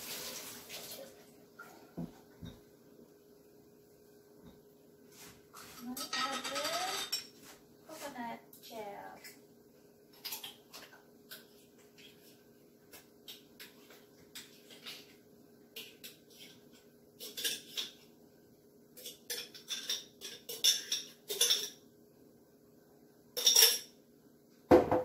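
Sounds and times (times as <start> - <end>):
kitchenware clinking and clattering: 1.6 - 2.7, 5.6 - 7.5, 10.1 - 18.1, 18.9 - 21.9, 23.4 - 24.0.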